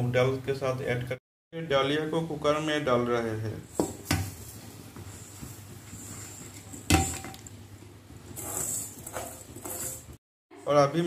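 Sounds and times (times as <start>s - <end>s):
dry grain rustling into a pot: 8.4s - 10.2s.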